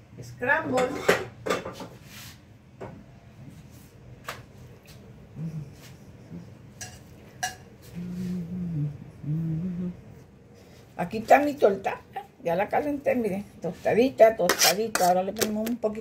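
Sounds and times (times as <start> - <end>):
utensils clinking on frying pan: 6.8 - 7.7.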